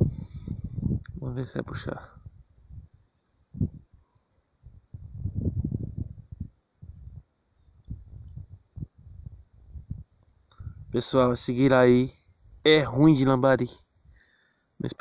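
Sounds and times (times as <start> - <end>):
low rumbles on microphone: 0.0 - 4.0, 4.6 - 11.4
crickets chirring: 0.0 - 15.0.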